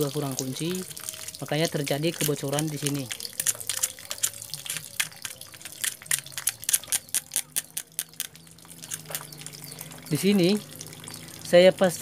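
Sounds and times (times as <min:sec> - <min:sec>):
screwdriver clicking on metal: 0:03.3 - 0:09.2.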